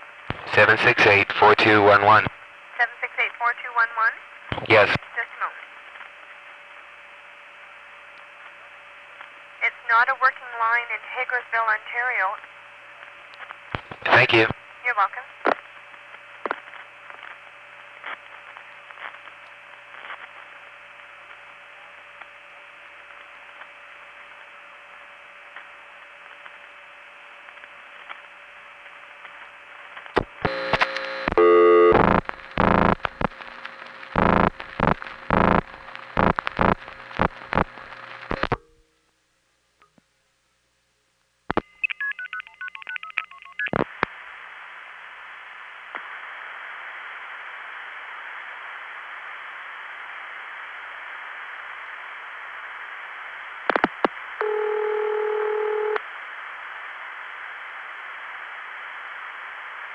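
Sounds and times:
telephone line hiss: 0.4s - 2.3s, 30.4s - 38.7s, 53.6s - 56.0s
faint steady tones: 5.2s - 40.0s
rotary dial razzing: 34.1s - 38.4s.

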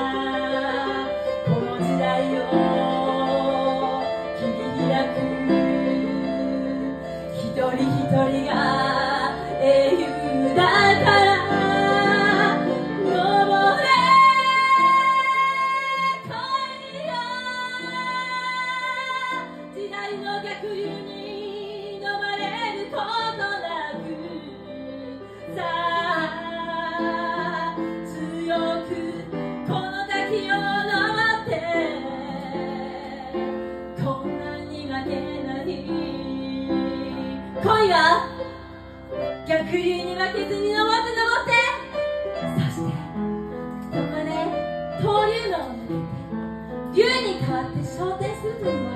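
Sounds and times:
woman singing into microphone: 0.0s - 38.6s, 39.4s - 43.0s, 43.8s - 46.2s, 46.9s - 48.9s
keyboard accompaniment: 0.0s - 48.9s.

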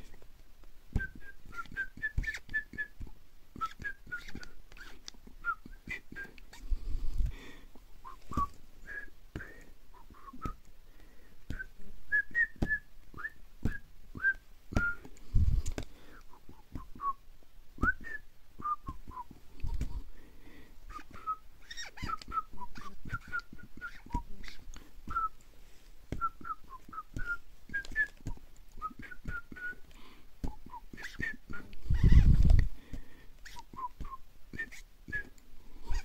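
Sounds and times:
short whistled notes: 20.9s - 25.4s.

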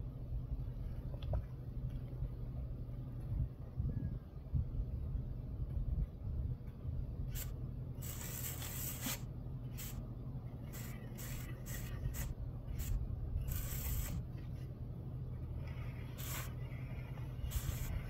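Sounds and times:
low hum: 0.0s - 18.0s
plastic float rubbing on stucco: 15.5s - 18.0s.

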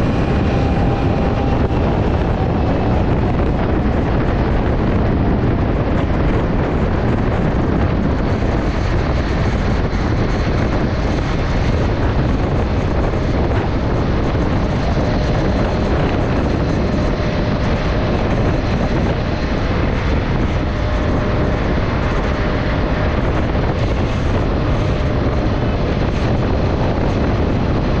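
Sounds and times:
scooter engine running flat out: 0.0s - 5.0s
faint steady whine: 0.0s - 28.0s
wind rush on microphone: 0.0s - 28.0s.

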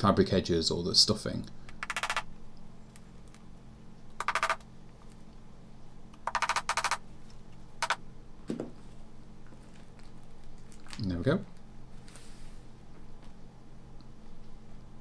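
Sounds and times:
hammer tapping tacks: 4.2s - 4.6s, 7.8s - 8.0s.

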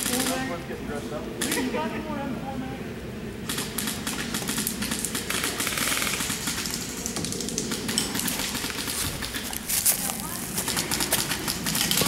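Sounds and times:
airsoft guns firing: 3.5s - 9.5s.

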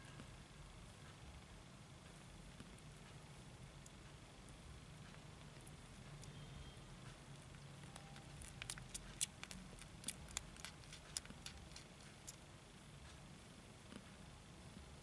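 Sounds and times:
faint low hum: 0.0s - 15.0s
kittens suckling clicks and smacks: 5.1s - 6.4s, 7.1s - 12.5s.

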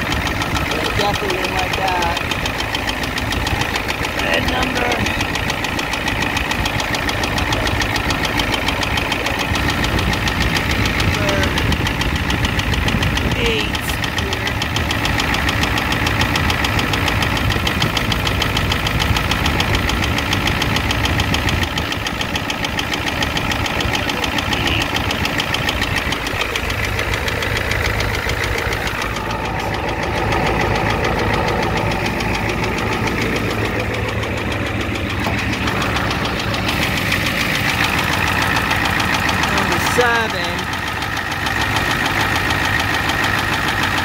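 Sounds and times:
diesel engine running with knock: 0.0s - 44.0s.

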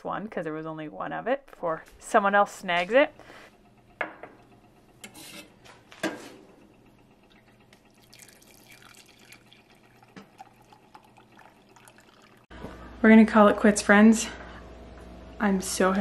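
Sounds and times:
water trickling into mug: 7.2s - 12.5s.

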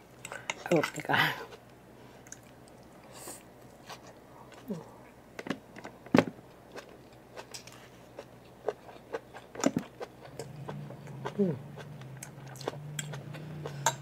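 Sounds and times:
chewing: 6.7s - 14.0s.

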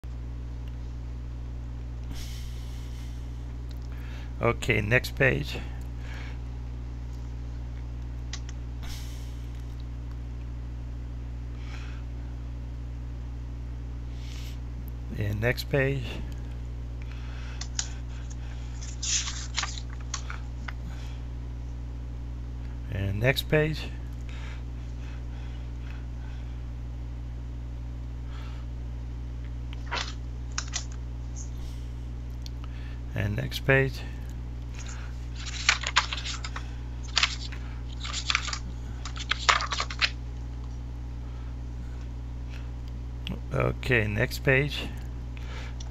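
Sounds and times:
low electrical hum: 0.0s - 45.9s
paper pages turning: 17.7s - 20.8s, 29.8s - 31.4s, 34.8s - 40.2s.

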